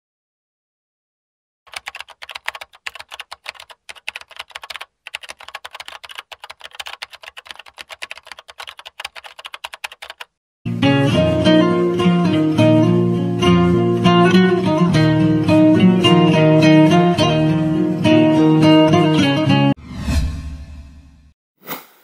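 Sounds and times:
computer keyboard typing: 1.7 - 10.3
plucked guitar music: 10.7 - 19.7.

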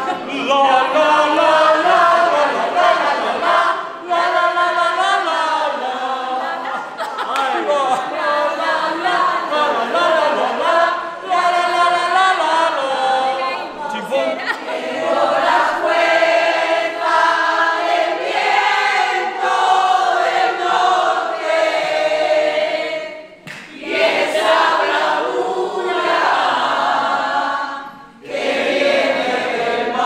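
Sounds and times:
group of adults singing: 0.0 - 30.0.

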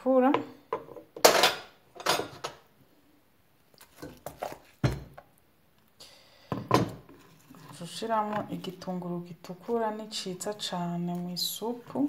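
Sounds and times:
pot and utensils clinking: 0.8 - 2.6.

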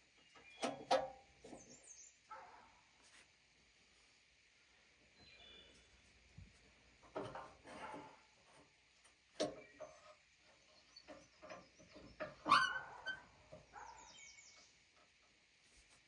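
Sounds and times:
birds chirping: 9.5 - 14.8.

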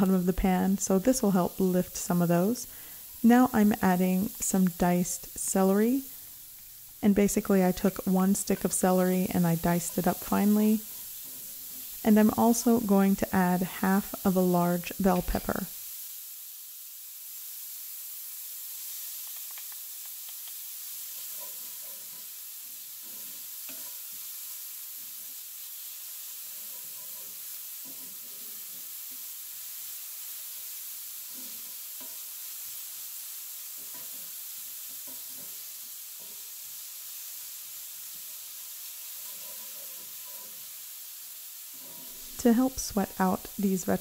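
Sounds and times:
vegetables sizzling in oil: 0.0 - 44.0
wooden spoon scraping a pan: 21.0 - 24.3, 26.3 - 29.2, 39.0 - 40.8, 41.7 - 42.5.

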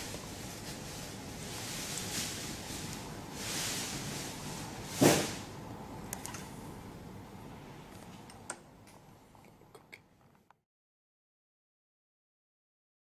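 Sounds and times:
steady hiss: 0.0 - 7.9.

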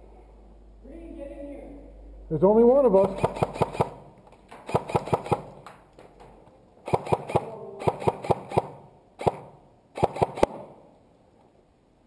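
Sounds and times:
airsoft gun shots: 3.0 - 5.6, 6.8 - 10.8.

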